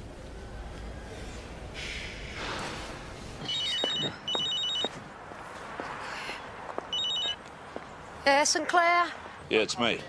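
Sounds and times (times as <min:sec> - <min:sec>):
electronic telephone ringing: 0:03.4 - 0:05.0, 0:06.9 - 0:07.4.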